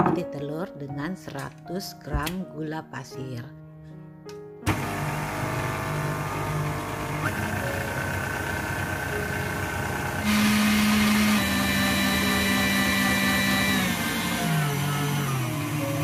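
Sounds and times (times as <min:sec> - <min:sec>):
stand mixer motor whine: 0:04.7 - 0:16.0
whisk whirring in steel bowl: 0:10.2 - 0:16.0.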